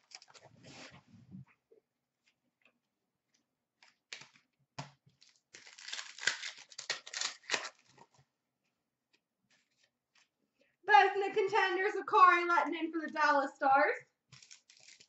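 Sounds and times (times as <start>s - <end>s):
wrapper crinkling and tearing: 0.0s - 0.5s, 5.1s - 8.2s, 14.3s - 15.0s.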